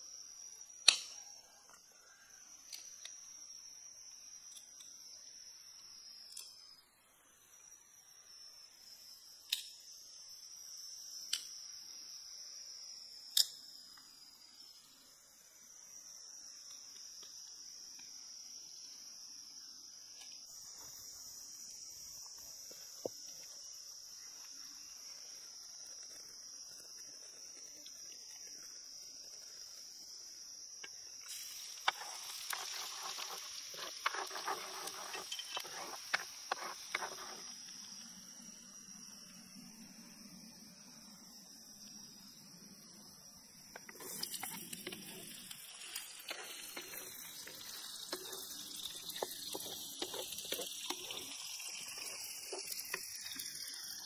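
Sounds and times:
insects chirring: 0.0 - 54.0
hot oil sizzling in a wok: 31.1 - 37.7, 44.0 - 54.0.

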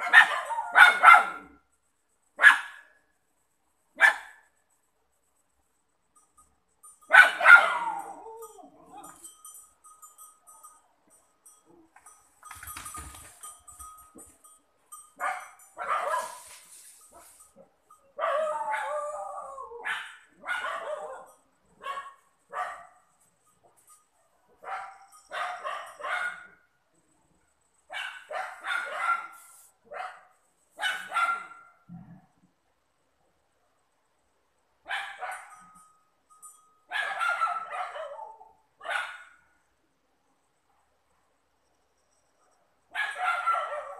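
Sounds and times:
dog barking: 0.0 - 1.6, 2.4 - 2.9, 4.0 - 4.4, 7.1 - 8.1, 15.2 - 16.4, 18.2 - 19.1, 19.8 - 23.0, 24.5 - 26.6, 27.9 - 31.8, 34.9 - 35.6, 36.9 - 39.4, 42.9 - 43.9.

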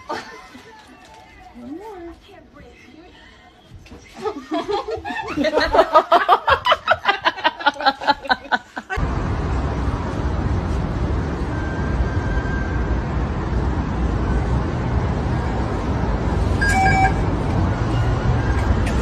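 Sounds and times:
woman laughing: 0.0 - 0.9, 4.2 - 9.0
low urban rumble: 0.0 - 19.0.

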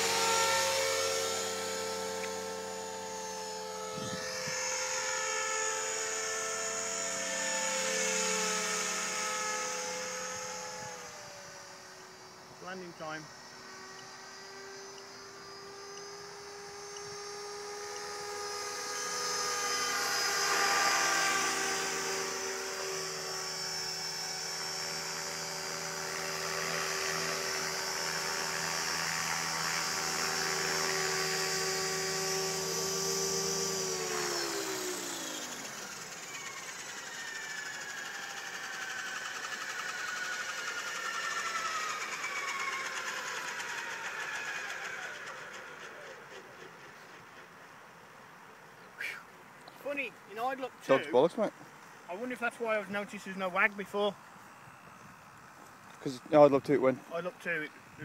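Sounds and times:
model helicopter motor whine: 0.0 - 58.0.

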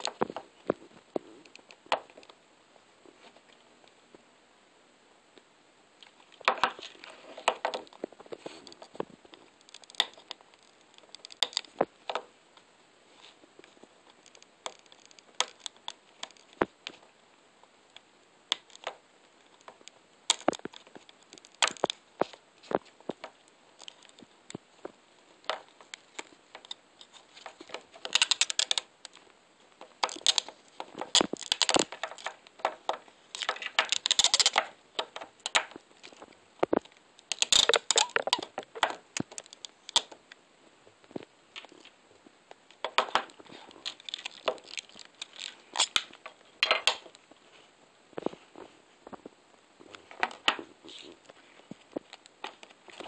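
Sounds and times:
plastic crackling: 0.0 - 2.4, 6.0 - 53.0
plastic case clicking and creaking: 6.4 - 12.3, 14.2 - 17.0, 19.6 - 24.6, 25.4 - 29.2, 29.8 - 40.2, 42.7 - 47.2.

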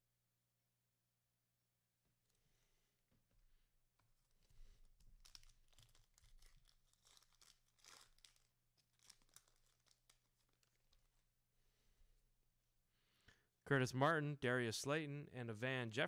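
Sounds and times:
wrappers tearing and crinkling: 4.3 - 11.2.

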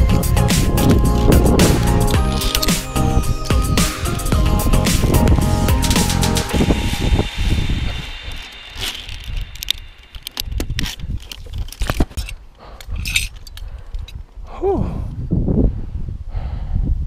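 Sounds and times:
wind rumbling on microphone: 0.0 - 17.0
carabiners clinking on cable: 0.9 - 4.3, 8.3 - 14.4.

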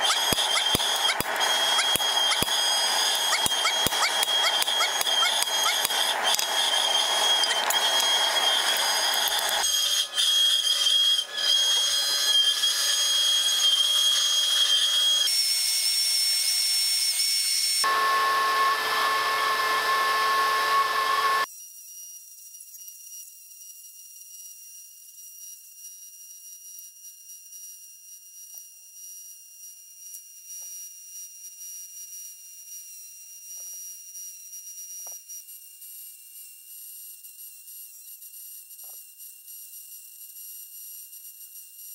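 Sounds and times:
high-pitched machine whine: 0.0 - 21.5
power saw cutting steel: 0.0 - 21.5.

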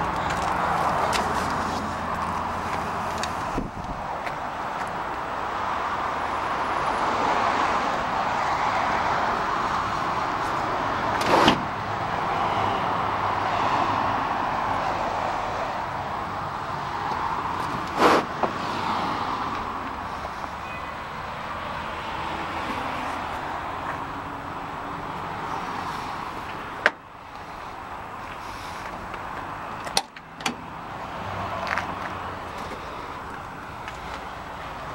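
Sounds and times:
cars passing hiss: 6.6 - 29.6.

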